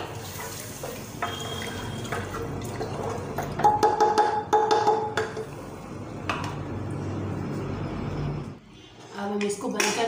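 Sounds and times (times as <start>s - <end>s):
spoon knocking on metal pot: 3.6s - 5.4s.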